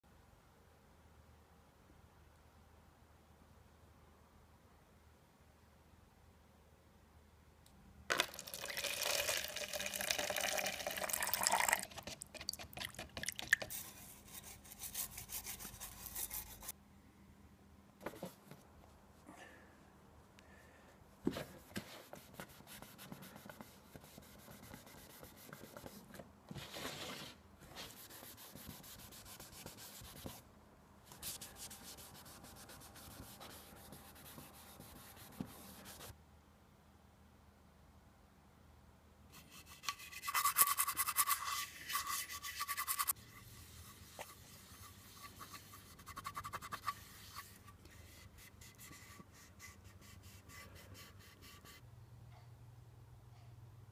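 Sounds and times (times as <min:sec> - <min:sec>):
cloth rubbing on metal teapot: 0:39.6 - 0:50.6.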